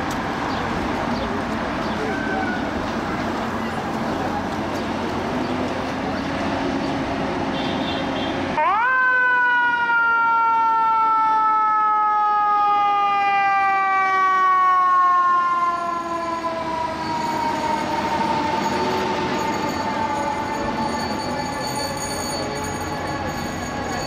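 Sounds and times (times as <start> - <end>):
fire engine mechanical siren wail: 8.5 - 24.0.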